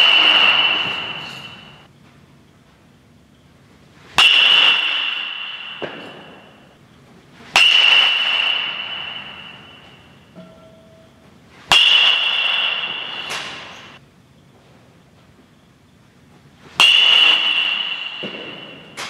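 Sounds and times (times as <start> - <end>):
metal bat hitting baseball: 0.0 - 1.9, 4.1 - 6.8, 7.5 - 14.0, 16.8 - 19.0.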